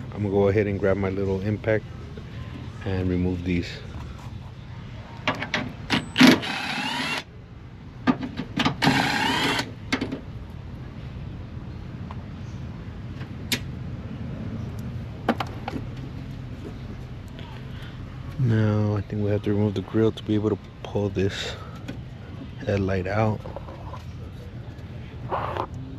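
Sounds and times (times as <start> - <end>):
cordless impact tool whirring: 6.2 - 7.3, 8.8 - 9.7.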